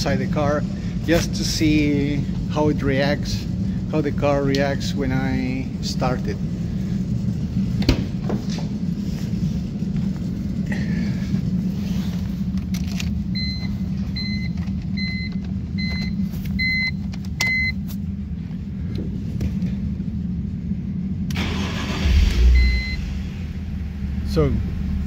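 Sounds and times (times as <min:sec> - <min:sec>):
steady low hum: 0:00.0 - 0:25.0
dashboard warning chime beeping: 0:13.3 - 0:17.8, 0:22.5 - 0:23.1.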